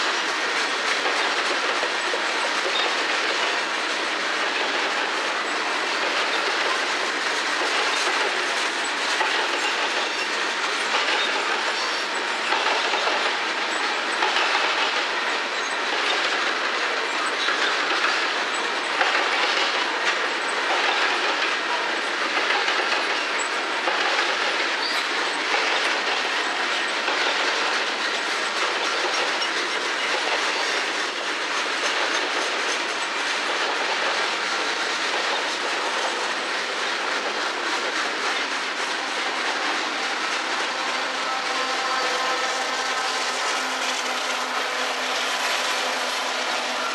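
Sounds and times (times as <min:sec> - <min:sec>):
steel wheels rolling on rail: 0:00.0 - 0:46.9
wheels clicking over rail joints: 0:00.0 - 0:46.9.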